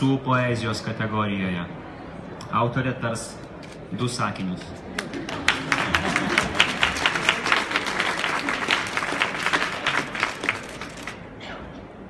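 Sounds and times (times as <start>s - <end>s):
audience applauding: 5.0s - 11.2s.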